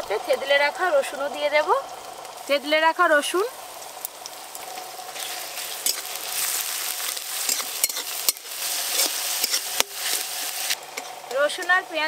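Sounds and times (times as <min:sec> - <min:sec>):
onion and garlic sizzling in oil: 0:00.0 - 0:12.0
spatula scraping and knocking pan: 0:07.0 - 0:11.8.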